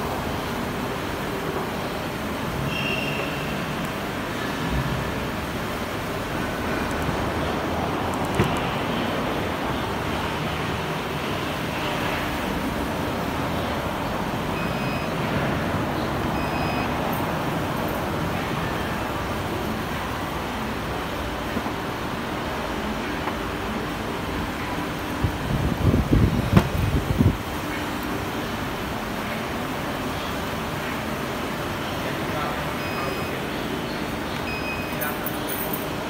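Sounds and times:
short high beeps: 14.6s - 15.2s, 16.4s - 17.0s, 32.8s - 33.4s, 34.5s - 35.2s.

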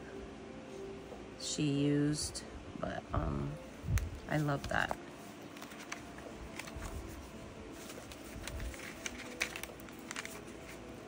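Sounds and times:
paper pages rustling: 4.0s - 11.0s.

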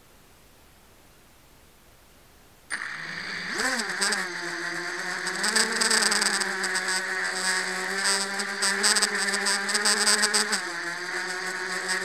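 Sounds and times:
drone motors whining: 2.7s - 12.0s.

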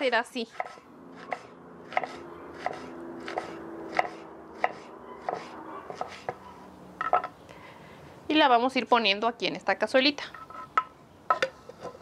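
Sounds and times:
knife slicing onion on wooden board: 0.5s - 6.5s.

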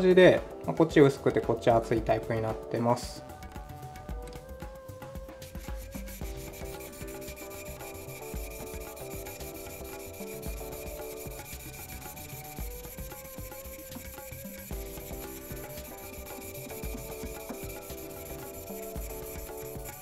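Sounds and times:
knife scraping on whetstone: 5.5s - 20.0s.

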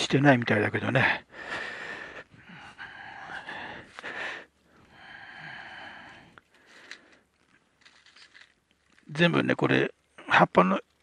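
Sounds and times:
man breathing into microphone: 1.2s - 7.2s.

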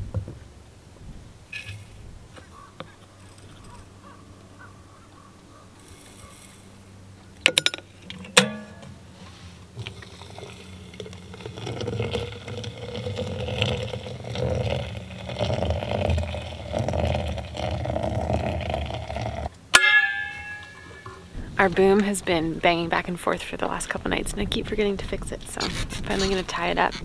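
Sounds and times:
metal kettle clicks and clank: 7.4s - 9.0s
water pouring and gurgling: 9.6s - 19.5s.

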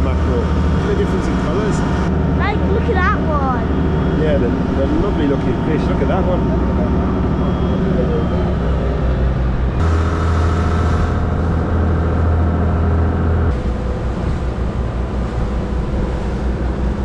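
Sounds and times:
boat engine drone: 0.0s - 17.0s
water rushing: 0.0s - 17.0s
wind: 0.0s - 17.0s.

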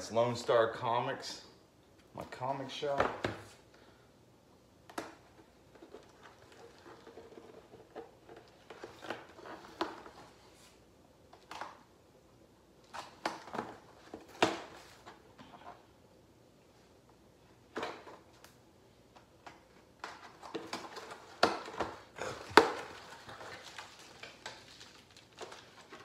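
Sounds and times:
packaging rustling: 20.0s - 26.0s.

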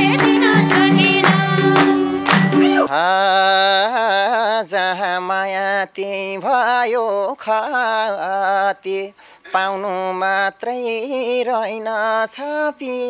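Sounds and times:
man singing unaccompanied: 2.6s - 13.0s.

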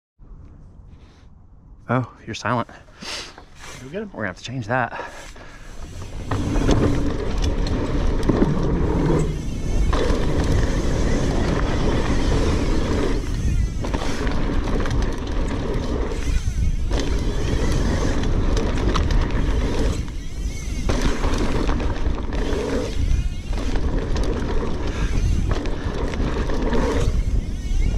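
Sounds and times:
wind buffeting microphone: 5.4s - 27.9s
tyres rumbling over dirt: 5.6s - 27.4s.

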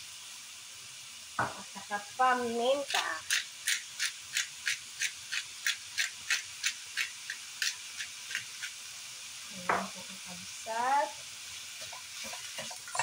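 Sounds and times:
faint sizzling pan: 0.0s - 13.0s
pepper grinder crunching: 2.8s - 8.8s.

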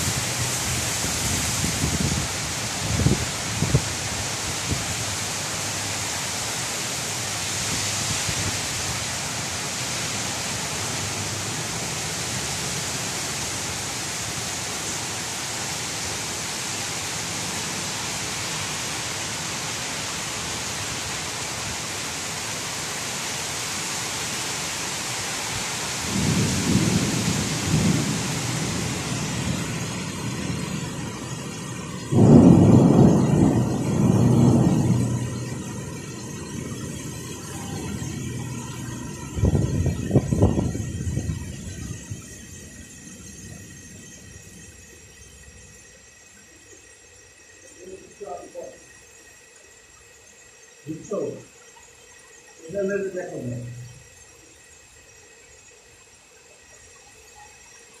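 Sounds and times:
heavy rain pouring: 0.0s - 58.0s
thunder rumbling: 26.1s - 45.9s.

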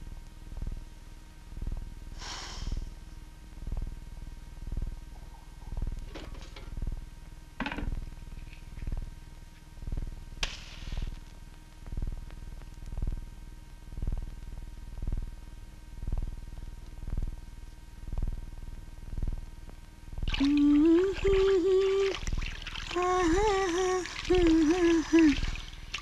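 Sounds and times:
faint steady hum: 0.0s - 26.0s
slow low drum beat: 1.5s - 1.9s, 3.6s - 4.0s, 4.7s - 5.0s, 13.9s - 14.4s, 15.0s - 15.4s, 16.0s - 17.4s, 18.1s - 18.5s, 19.1s - 21.8s
short hiss: 10.4s - 11.2s.

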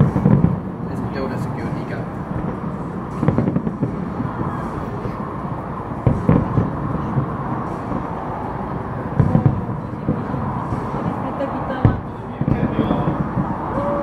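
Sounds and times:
background rumble: 0.0s - 14.0s
distant fireworks booming: 0.0s - 14.0s.

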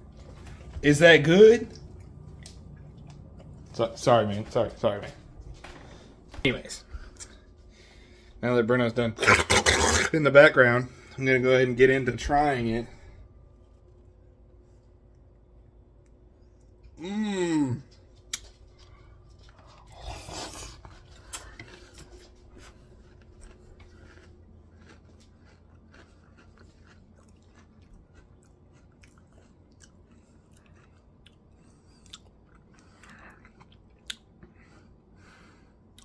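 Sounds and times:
cereal crunching while chewing: 17.9s - 34.3s.

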